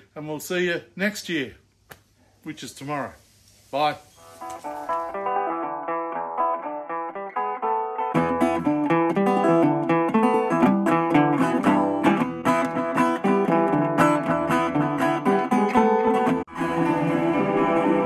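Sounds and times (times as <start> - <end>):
acoustic guitar music: 4.1 - 18.0.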